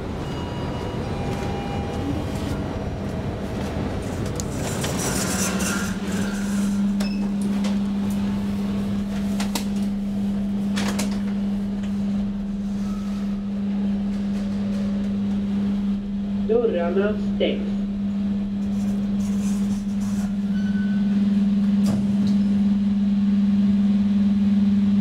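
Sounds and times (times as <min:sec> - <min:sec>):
machine hum: 0:00.0 - 0:25.0.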